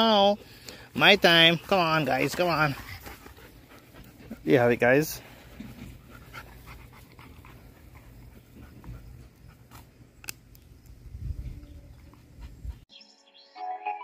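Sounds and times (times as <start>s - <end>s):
dog panting: 0.3s - 9.9s.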